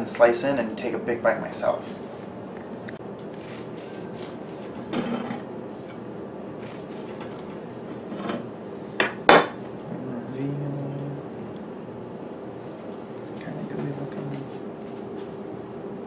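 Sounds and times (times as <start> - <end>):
knife sawing through bread: 3.4 - 4.8, 6.6 - 7.5.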